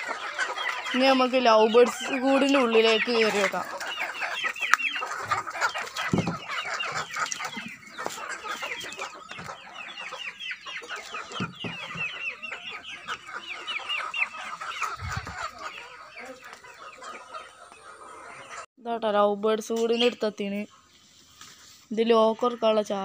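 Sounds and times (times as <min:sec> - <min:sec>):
chickens clucking: 0:00.0 - 0:23.0.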